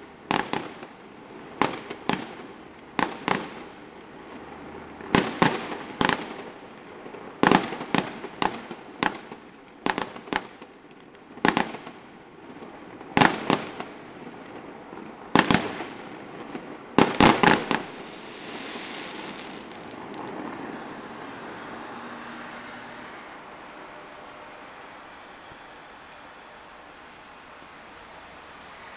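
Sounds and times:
steady hiss: 0.0s - 28.9s.

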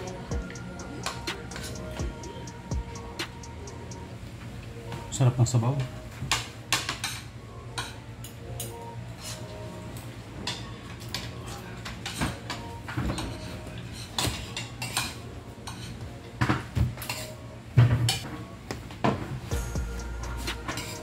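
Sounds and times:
cutlery clinking on plates: 6.2s - 9.4s, 10.4s - 18.3s.

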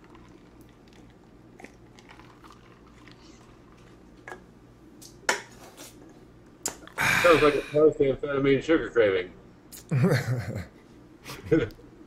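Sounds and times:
sipping drink: 0.0s - 4.4s.

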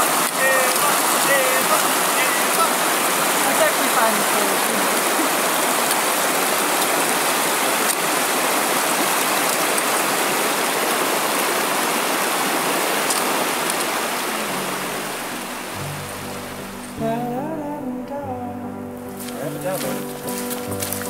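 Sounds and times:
rushing water: 0.0s - 21.0s
low sustained music notes: 14.2s - 21.0s.

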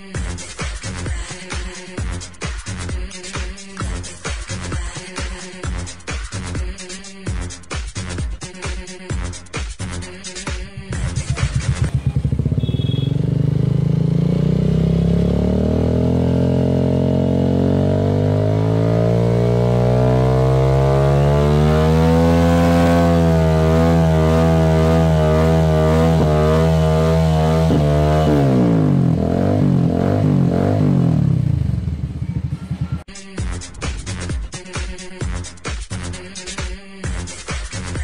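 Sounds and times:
motorcycle engine revving: 10.6s - 33.1s.

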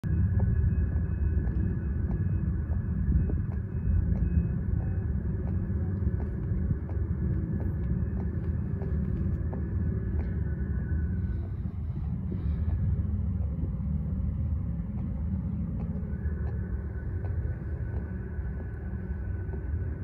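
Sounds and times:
low steady rumble: 0.0s - 20.0s.

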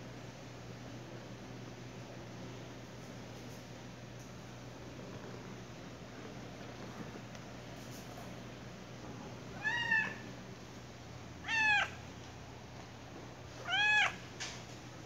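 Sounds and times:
cat meowing: 9.5s - 10.3s, 11.4s - 12.0s, 13.6s - 14.2s.

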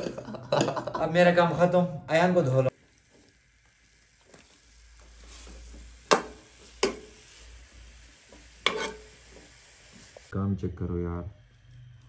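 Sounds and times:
chicken sizzling in a pan: 2.6s - 10.4s
metal ladle knocking on pan: 6.1s - 7.1s.

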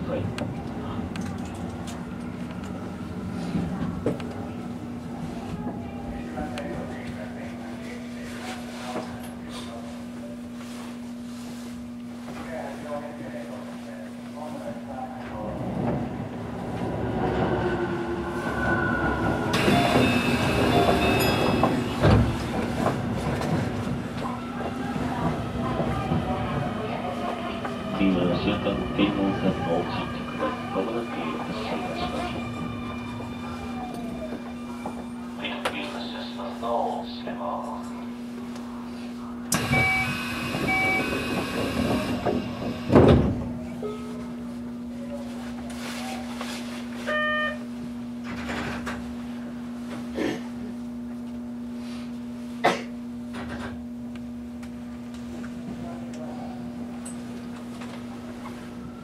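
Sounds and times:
electric train running: 15.8s - 35.2s, 39.5s - 43.2s.

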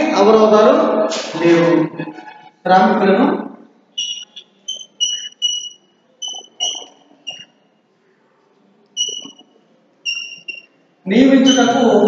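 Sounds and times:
chalk squeaking on blackboard: 4.0s - 7.6s, 9.0s - 12.0s.

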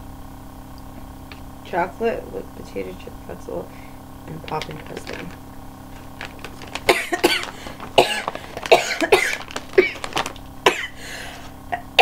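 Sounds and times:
woman coughing: 6.9s - 11.0s.

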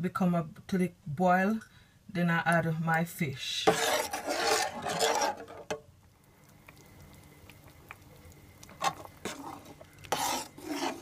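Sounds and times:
metal spoon scraping a pot: 3.6s - 5.8s, 8.8s - 11.0s.

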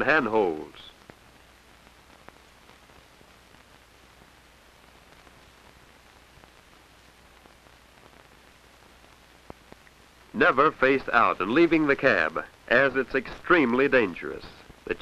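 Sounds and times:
soft crackle clicks: 0.0s - 10.4s, 14.2s - 15.0s
film soundtrack hiss: 0.0s - 15.0s.

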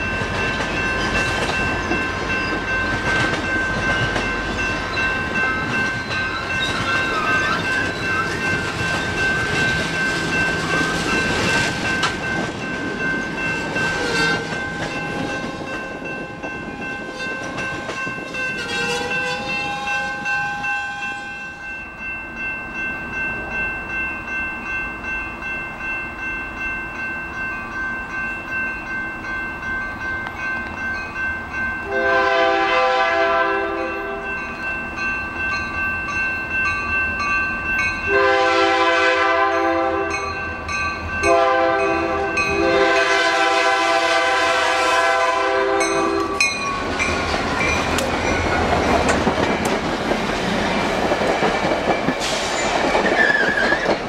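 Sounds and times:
train cars rail clatter: 0.0s - 21.4s, 32.0s - 54.0s
crossing warning bells ringing: 0.0s - 54.0s
locomotive horn blast: 18.6s - 21.4s, 31.9s - 34.2s, 38.1s - 40.2s, 41.3s - 46.4s.

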